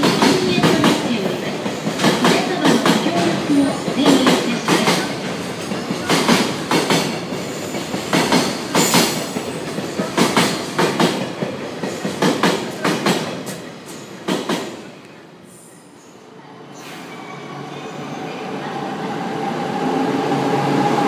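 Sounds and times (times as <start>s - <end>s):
train wheels clacking over joints: 0.0s - 14.8s
train rolling rumble: 0.0s - 14.9s.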